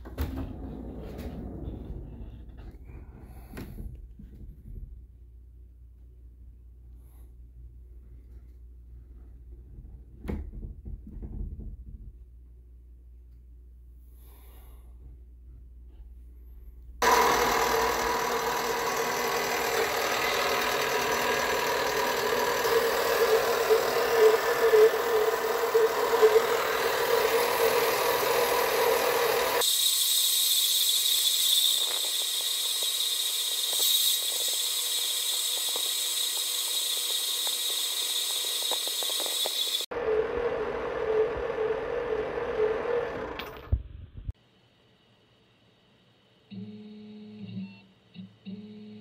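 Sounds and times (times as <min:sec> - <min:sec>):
blade cutting hiss: 0:17.0 - 0:39.9
metal-cutting bandsaw hum: 0:17.0 - 0:43.6.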